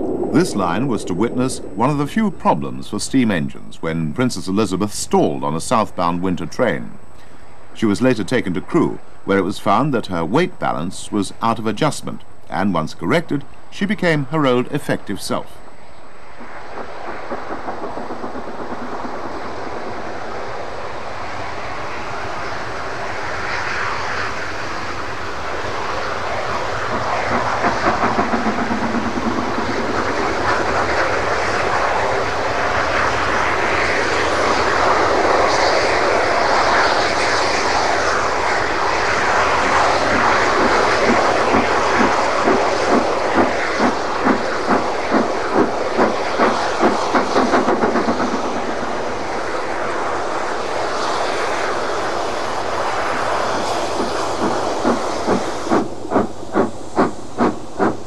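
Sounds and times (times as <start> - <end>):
steam locomotive roaring: 0.0 - 6.6, 16.3 - 58.0
quick regular exhaust beat: 40.5 - 48.5, 53.9 - 58.0.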